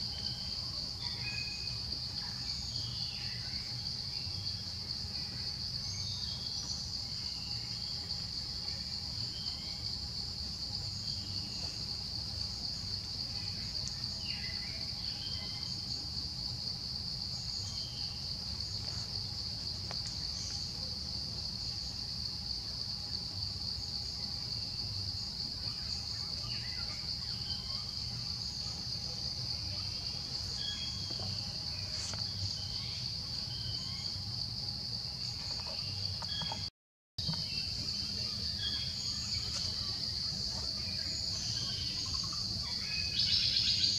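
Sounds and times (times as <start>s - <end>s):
high-pitched insect chorus: 0.0s - 43.9s
faint chirps: 22.9s - 43.9s.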